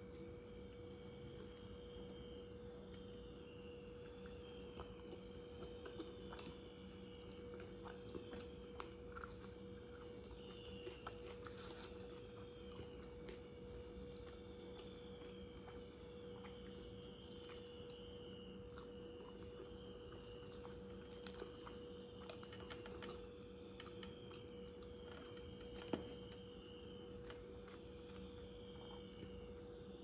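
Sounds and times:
faint electrical hum: 0:00.0 - 0:30.0
person chewing with mouth clicks: 0:04.6 - 0:26.3.

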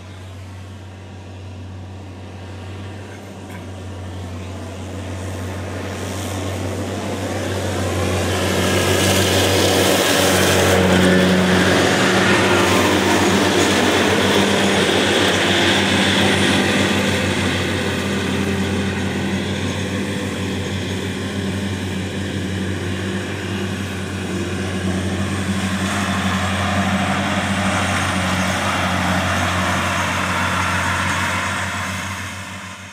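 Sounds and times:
tractor and mower drone: 0:00.0 - 0:32.9.

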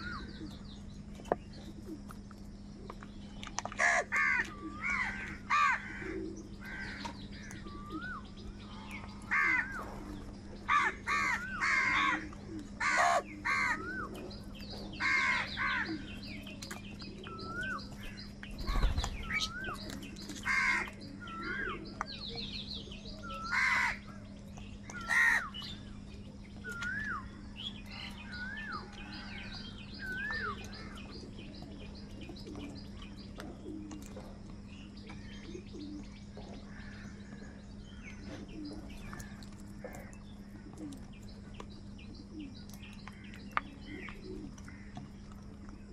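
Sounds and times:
steady low hum: 0:00.0 - 0:45.9
crows cawing: 0:03.8 - 0:09.8, 0:10.7 - 0:14.1, 0:15.0 - 0:16.1, 0:20.4 - 0:21.8, 0:23.4 - 0:24.2, 0:24.9 - 0:25.6, 0:44.7 - 0:45.0.

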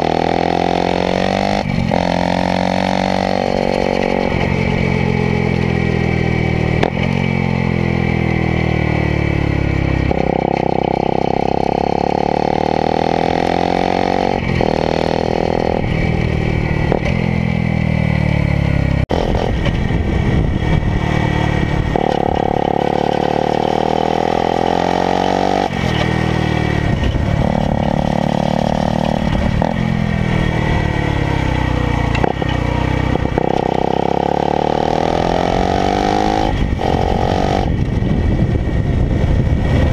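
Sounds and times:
motorcycle engine revving: 0:00.0 - 0:39.9
wind rush: 0:19.1 - 0:22.8, 0:25.7 - 0:30.9, 0:34.8 - 0:39.9.

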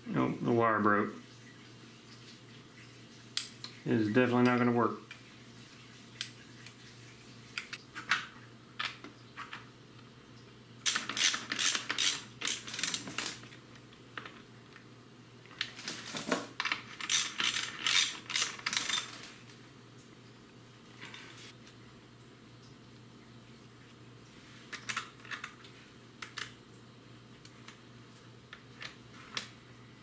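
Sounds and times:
socket ratchet clicking: 0:10.9 - 0:13.0, 0:17.0 - 0:19.1.

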